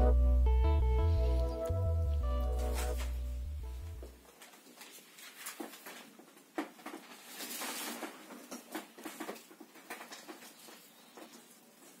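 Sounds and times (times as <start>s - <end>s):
scratchy rustling: 2.5s - 3.3s, 7.0s - 12.0s.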